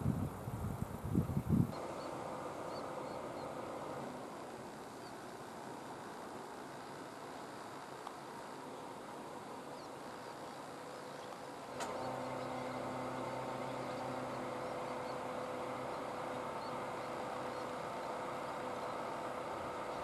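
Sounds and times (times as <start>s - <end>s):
steady multi-tone hum: 0.0s - 20.0s
sharp click: 11.7s - 12.1s.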